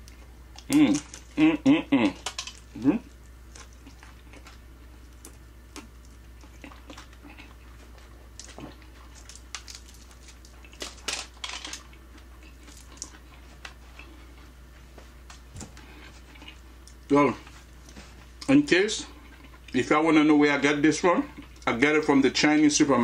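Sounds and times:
person chewing: 0.0s - 14.7s, 15.3s - 17.1s, 19.1s - 19.8s
wet clicks and smacks: 8.0s - 13.8s.

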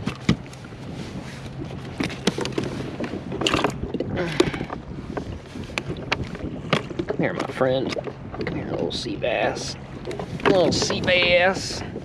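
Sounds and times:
hands handling fish and tackle: 0.0s - 8.5s.

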